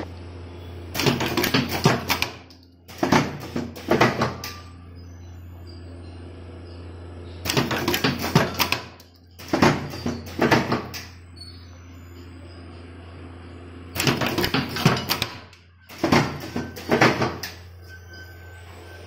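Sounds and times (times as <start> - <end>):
rapid mechanical clicking and knocking: 0.9 - 4.6, 7.4 - 11.1, 13.9 - 17.6.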